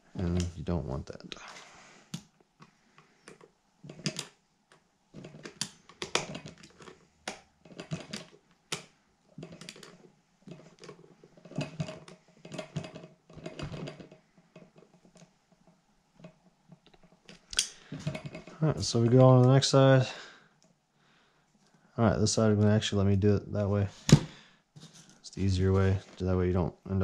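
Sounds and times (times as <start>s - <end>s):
hand tools clicking on metal: 16.8s - 18.6s.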